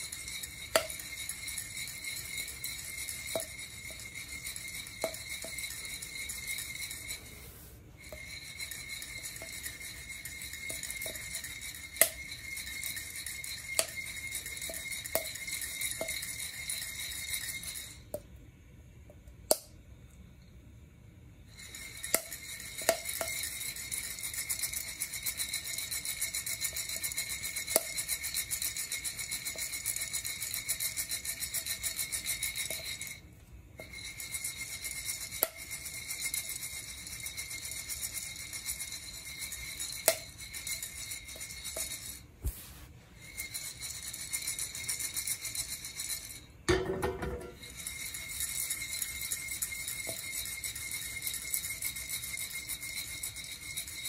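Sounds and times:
coffee beans rattling in roaster: 0:08.0 - 0:16.9, 0:43.2 - 0:54.0.

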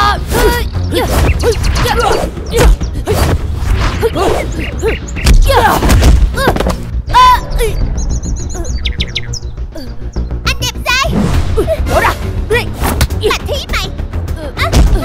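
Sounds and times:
punches and kicks landing: 0:05.2 - 0:06.8.

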